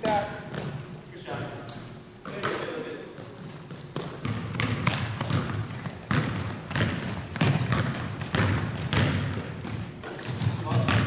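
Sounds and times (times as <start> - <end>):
basketball bouncing on hardwood: 0.0 - 0.9, 3.2 - 11.0.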